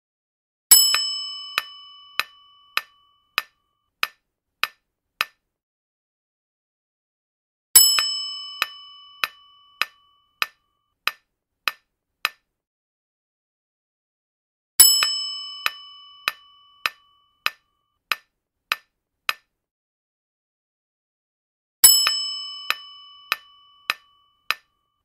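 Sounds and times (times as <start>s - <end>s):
bright bell-like chime: 0.7s - 3.4s, 7.8s - 10.4s, 14.8s - 17.4s, 21.8s - 24.5s.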